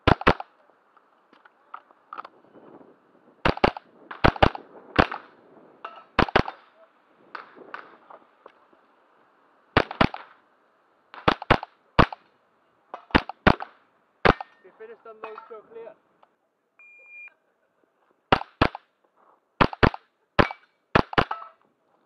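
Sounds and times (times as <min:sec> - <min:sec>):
rifle shots cracking: 0:00.0 - 0:00.5, 0:03.4 - 0:05.4, 0:06.1 - 0:07.9, 0:09.8 - 0:10.4, 0:11.1 - 0:12.3, 0:13.0 - 0:14.6, 0:18.3 - 0:18.8, 0:19.6 - 0:21.5.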